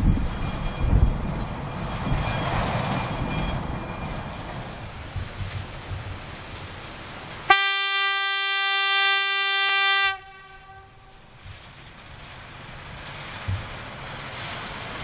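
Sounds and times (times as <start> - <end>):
locomotive engine rumble: 0.0 - 15.0
locomotive horn blast: 7.3 - 11.4.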